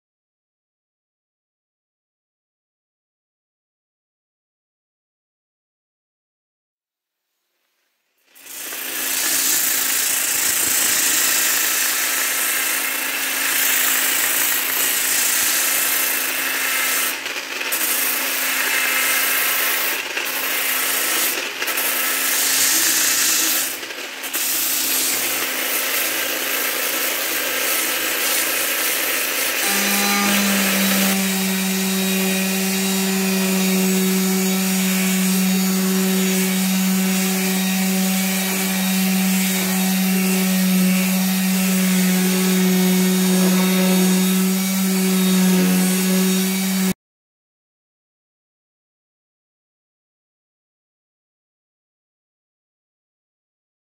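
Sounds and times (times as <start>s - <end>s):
power sander on wood: 8.3s - 47.0s
orbital sheet sander humming: 17.8s - 47.0s.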